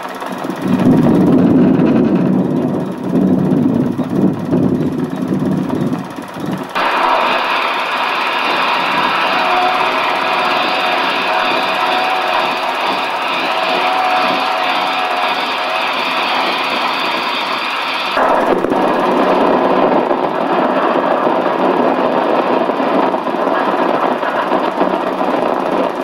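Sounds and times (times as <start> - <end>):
high-pressure spray hissing on metal: 6.8 - 18.2.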